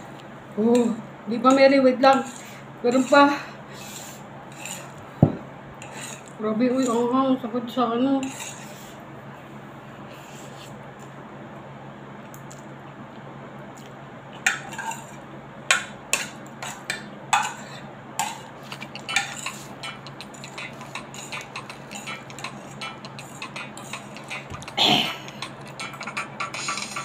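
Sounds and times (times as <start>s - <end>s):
fork scraping a ceramic plate: 1.5s - 5.0s, 5.8s - 7.1s, 8.2s - 9.0s, 14.5s - 15.2s, 16.2s - 27.0s.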